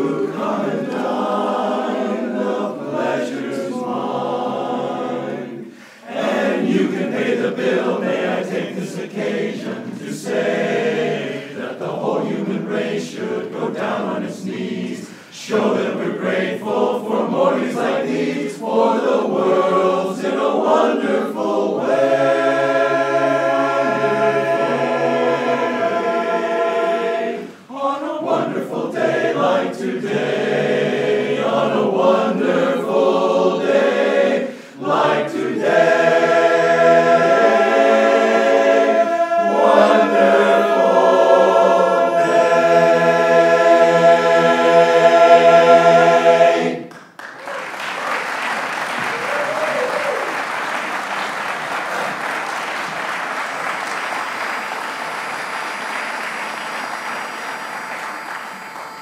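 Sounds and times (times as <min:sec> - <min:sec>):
male chorus singing a cappella: 0:00.0 - 0:46.9.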